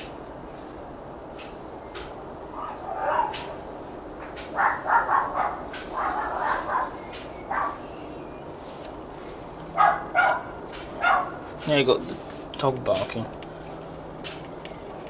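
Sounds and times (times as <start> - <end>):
dog barking: 2.6 - 3.5, 4.5 - 7.8, 9.8 - 11.4.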